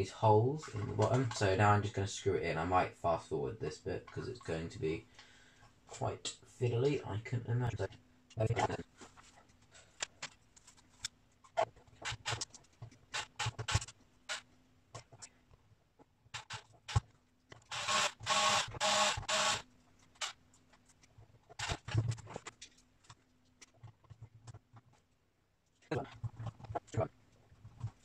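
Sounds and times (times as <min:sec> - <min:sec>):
cordless drill whirring: 0:17.7 - 0:19.6.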